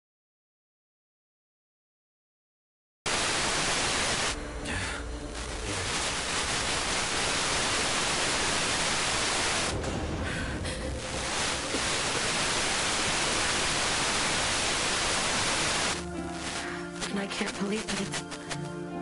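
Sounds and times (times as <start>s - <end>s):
radio static hiss: 3.1s - 4.4s, 5.2s - 9.8s, 10.9s - 18.7s
faint radio broadcast audio: 5.2s - 9.7s, 11.1s - 18.7s.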